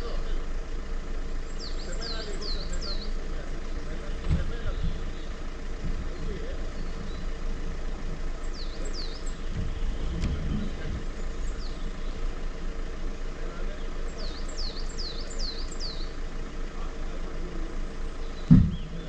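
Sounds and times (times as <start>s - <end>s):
vehicle engine idling: 0.0s - 19.0s
bird chirping: 1.4s - 19.0s
thump: 4.2s - 5.0s, 18.4s - 18.9s.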